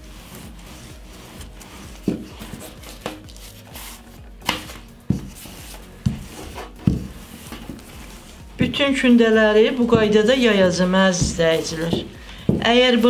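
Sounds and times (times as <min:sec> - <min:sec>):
rolling pin rubbing dough: 0:00.0 - 0:13.0
wooden rolling pin knocks: 0:04.4 - 0:05.4, 0:06.0 - 0:07.8, 0:09.8 - 0:13.0.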